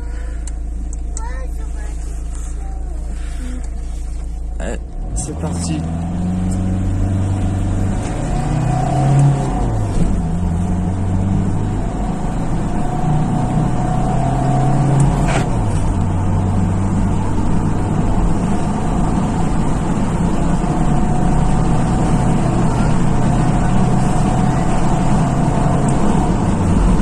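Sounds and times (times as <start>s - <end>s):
diesel engine accelerating hard: 0.0s - 27.0s.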